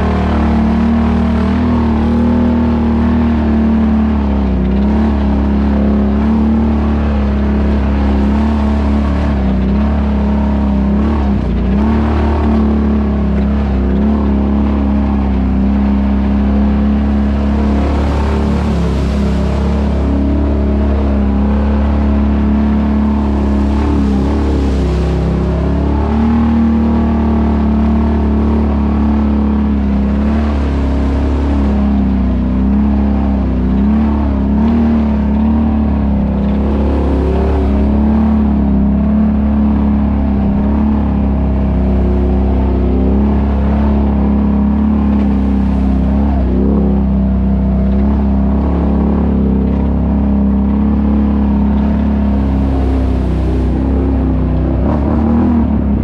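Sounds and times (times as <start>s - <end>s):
atv engine running: 0.0s - 56.0s.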